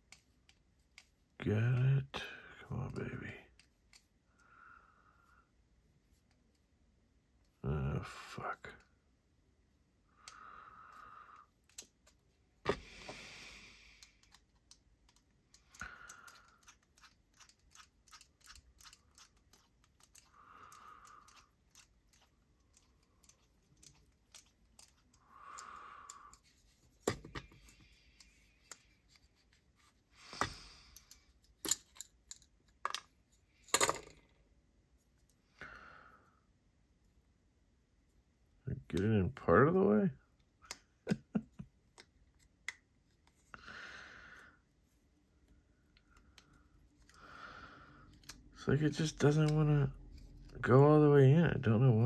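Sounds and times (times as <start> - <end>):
small metal parts clicking: 13.9 - 29.0, 30.8 - 34.2.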